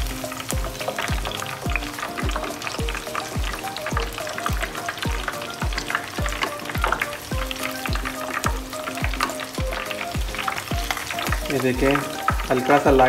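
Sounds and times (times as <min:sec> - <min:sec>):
background music with bass beat: 0:00.0 - 0:13.0
chicken sizzling in oil: 0:00.0 - 0:13.0.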